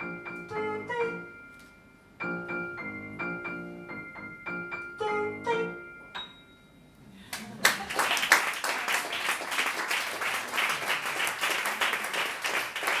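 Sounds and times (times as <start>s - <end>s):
audience applauding: 7.3s - 13.0s.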